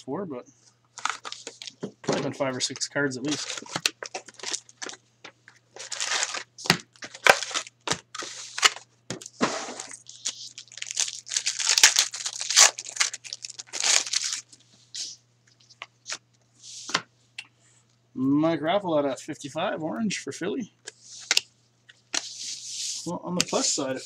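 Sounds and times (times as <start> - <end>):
wrapper tearing and crumpling: 1.0 - 1.8, 3.2 - 5.0, 5.8 - 8.8, 9.8 - 14.5
cards being handled: 1.0 - 14.4.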